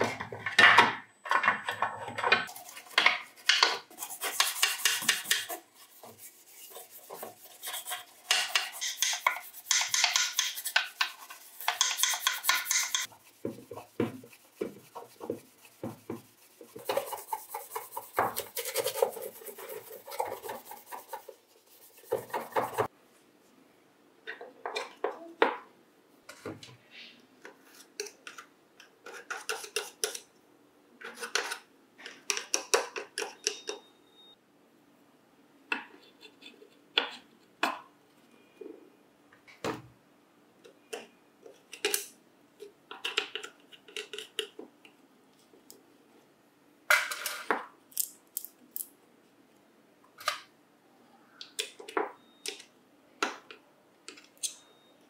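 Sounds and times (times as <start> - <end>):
hand scraping strokes: 2.5 - 22.9.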